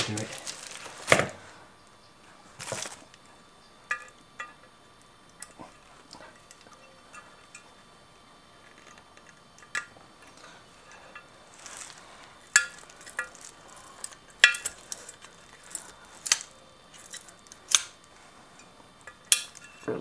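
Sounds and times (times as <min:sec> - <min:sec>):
pliers clinking on wire and bolts: 0:10.9 - 0:17.9, 0:18.6 - 0:19.9.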